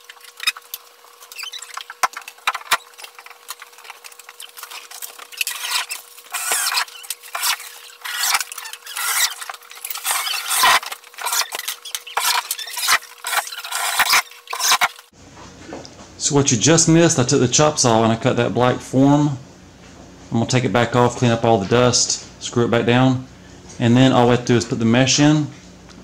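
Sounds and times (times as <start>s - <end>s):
faint steady hum: 0.0s - 26.0s
drill driving screws into wood: 5.5s - 14.9s.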